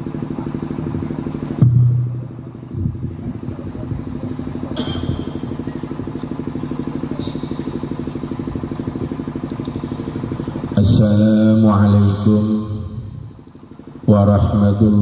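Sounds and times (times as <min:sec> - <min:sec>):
small engine idling: 0:00.0 - 0:01.6, 0:02.3 - 0:11.0.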